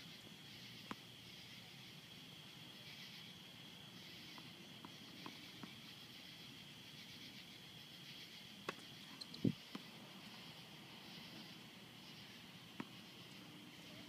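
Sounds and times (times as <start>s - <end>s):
high insect drone: 0.0s - 14.0s
tennis ball bouncing: 8.6s - 8.9s, 12.8s - 13.0s.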